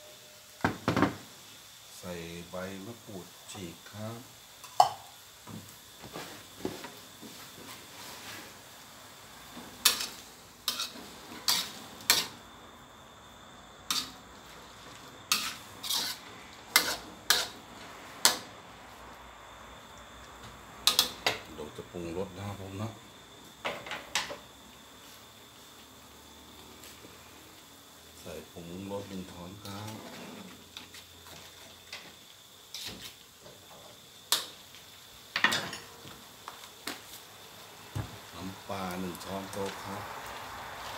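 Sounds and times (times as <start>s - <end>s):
spatula scraping a metal wok: 9.8s - 12.4s, 13.9s - 18.4s, 29.8s - 31.4s, 32.7s - 33.2s.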